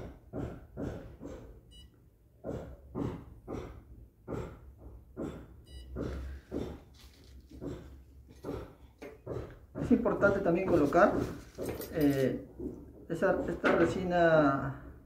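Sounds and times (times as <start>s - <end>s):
rapid breathing-like panting: 0.0s - 1.7s, 2.4s - 10.5s.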